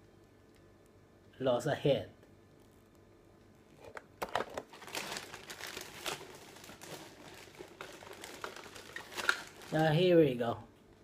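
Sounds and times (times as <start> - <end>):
packaging crinkling and rustling: 3.8 - 10.2.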